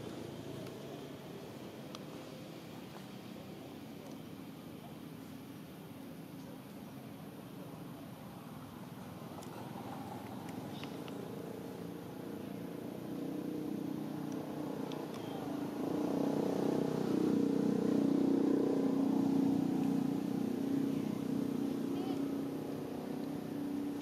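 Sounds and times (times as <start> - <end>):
motor vehicle engine running: 7.8 - 24.0.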